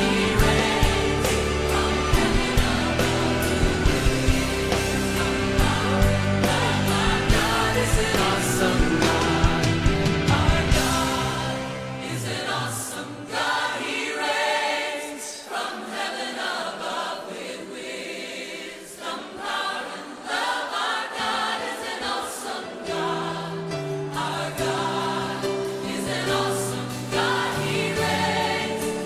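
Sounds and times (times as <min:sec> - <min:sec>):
bass: 0:00.0 - 0:12.1
choir singing: 0:00.0 - 0:29.0.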